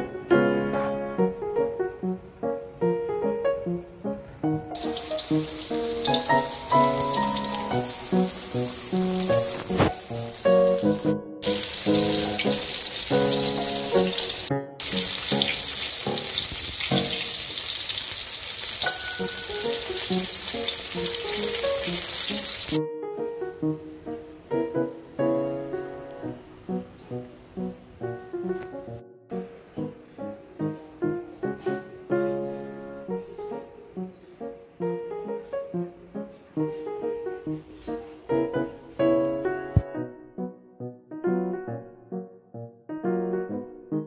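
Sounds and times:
piano music: 0:00.0 - 0:44.0
chicken sizzling in a frying pan: 0:04.8 - 0:22.8.

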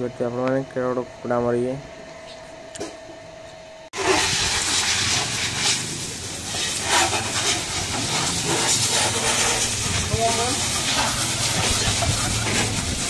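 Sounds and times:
hose water spraying on metal: 0:04.0 - 0:13.0.

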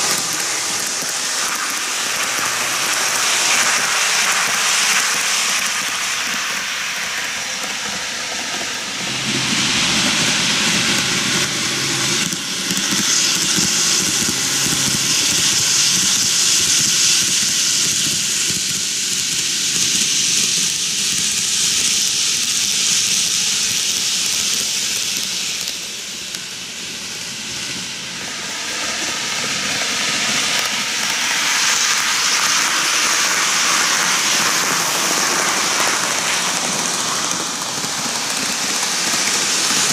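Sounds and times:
model train wheels rolling and rattling: 0:00.0 - 0:09.0, 0:28.1 - 0:39.9.

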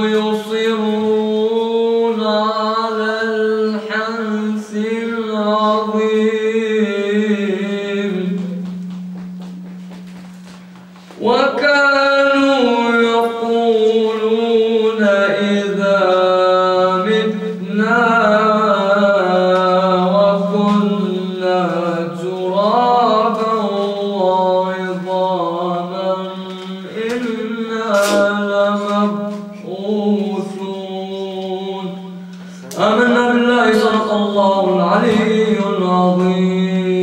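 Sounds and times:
man reciting melodically: 0:00.0 - 0:08.8, 0:11.1 - 0:37.0
low hum: 0:06.4 - 0:27.8.

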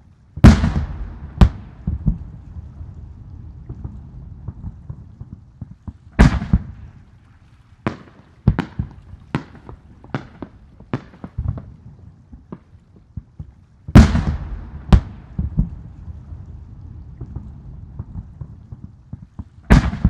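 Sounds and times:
fireworks bursting with echo: 0:00.0 - 0:07.2, 0:07.8 - 0:20.0.

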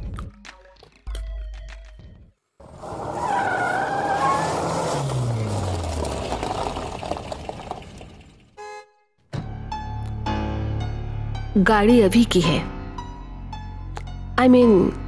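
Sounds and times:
car engine slowing: 0:02.6 - 0:08.6
tyres squealing: 0:02.8 - 0:08.1.

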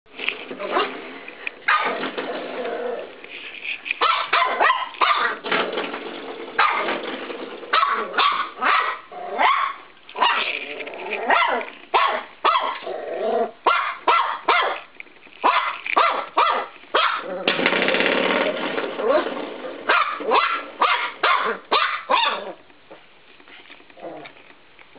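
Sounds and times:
puppy barking and yipping: 0:01.7 - 0:02.0, 0:04.0 - 0:05.4, 0:07.7 - 0:10.5, 0:11.3 - 0:12.8, 0:13.6 - 0:17.3, 0:19.9 - 0:22.6
puppy growling: 0:01.8 - 0:03.2, 0:07.9 - 0:09.7, 0:10.3 - 0:11.7, 0:12.7 - 0:13.6, 0:17.2 - 0:17.7, 0:24.0 - 0:24.4.

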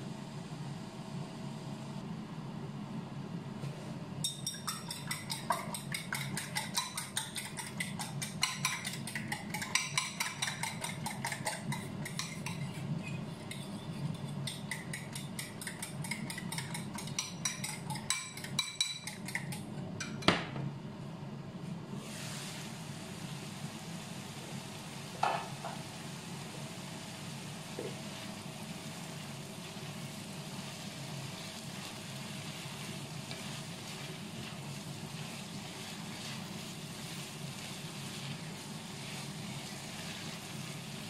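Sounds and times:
spoon beating egg in bowl: 0:04.2 - 0:20.3.

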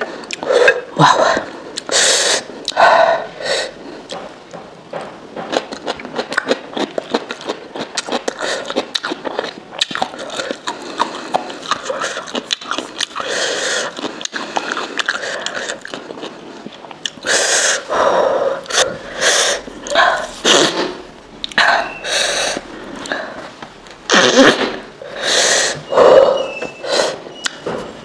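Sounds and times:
person breathing sharply and sniffing: 0:17.2 - 0:21.0, 0:21.6 - 0:23.5, 0:25.0 - 0:27.3.

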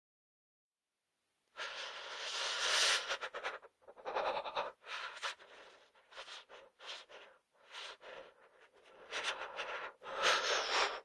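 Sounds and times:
person shivering breaths: 0:01.6 - 0:11.0.

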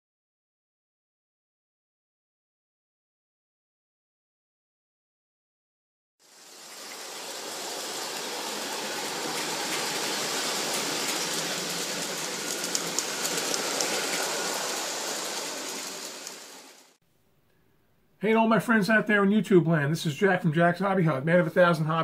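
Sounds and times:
toy train rolling rumble: 0:06.2 - 0:17.0
sharp clicks of toy train track: 0:06.4 - 0:17.0.

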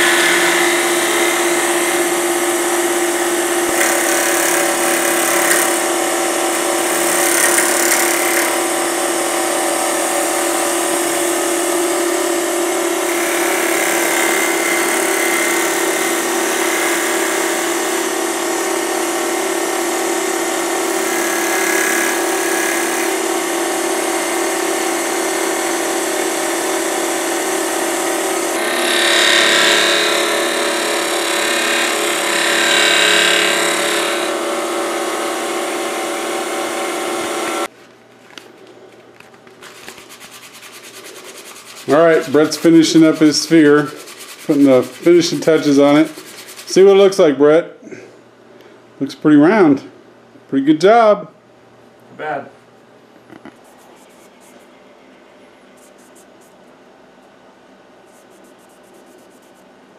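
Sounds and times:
chisel scraping spinning wood: 0:00.0 - 0:08.9, 0:10.6 - 0:18.6, 0:19.8 - 0:26.4, 0:27.2 - 0:37.7, 0:39.6 - 0:47.1
wood lathe whining: 0:00.0 - 0:37.7, 0:40.4 - 0:47.1.

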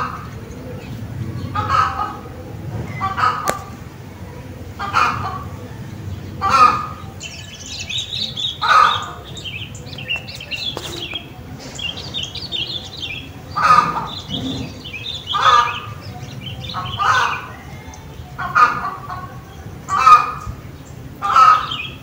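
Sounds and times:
small birds chirping: 0:00.0 - 0:22.0
larger bird calling: 0:06.2 - 0:20.6.

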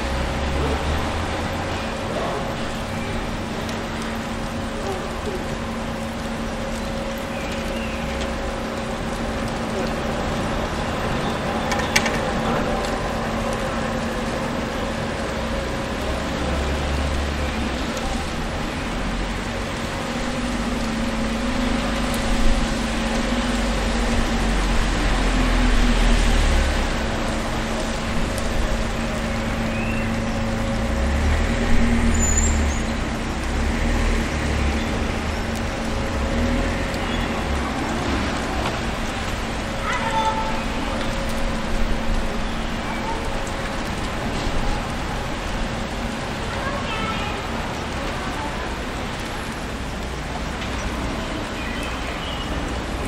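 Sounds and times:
vehicles passing: 0:00.0 - 0:53.0.

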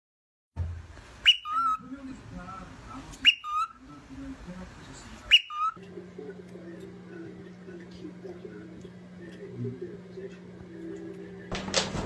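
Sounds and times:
whistled call: 0:01.2 - 0:01.8, 0:03.2 - 0:03.8, 0:05.3 - 0:05.8.

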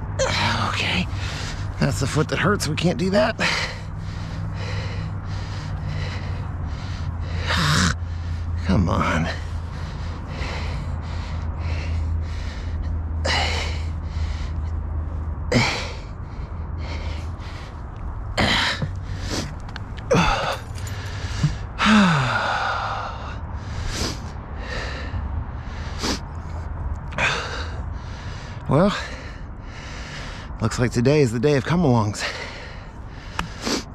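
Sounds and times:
man gasping and grunting: 0:03.1 - 0:14.6, 0:15.5 - 0:17.8, 0:18.4 - 0:25.1, 0:27.1 - 0:30.1.

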